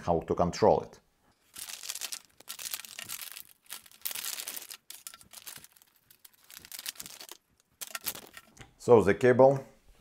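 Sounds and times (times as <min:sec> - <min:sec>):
plastic bag crinkling: 0:01.4 - 0:08.6.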